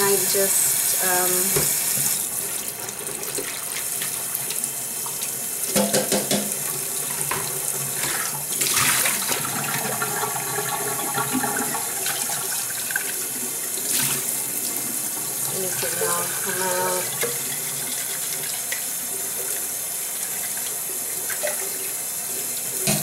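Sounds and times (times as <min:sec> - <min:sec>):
sharp knocks: 0:05.7 - 0:06.6
tap running into metal sink: 0:05.7 - 0:06.6, 0:22.8 - 0:23.0.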